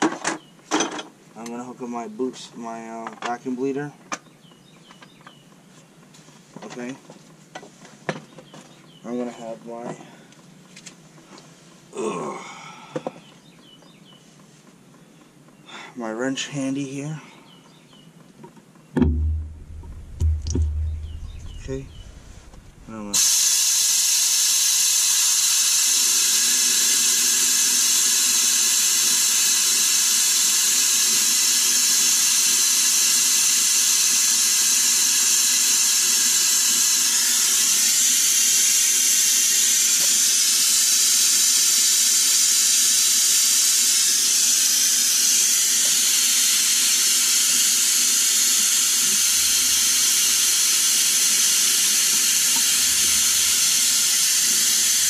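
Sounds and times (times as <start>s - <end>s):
vacuum brake bleeder hissing: 19.5s - 55.0s.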